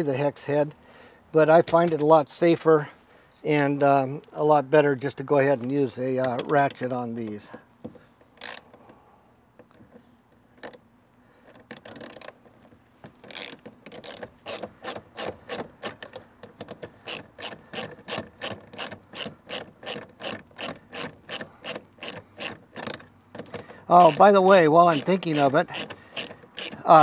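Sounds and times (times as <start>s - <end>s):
socket ratchet ratcheting: 8.2s - 8.8s, 11.5s - 12.4s, 13.2s - 27.0s
ratchet clicks: 8.3s - 8.8s, 11.5s - 12.4s, 13.2s - 27.0s.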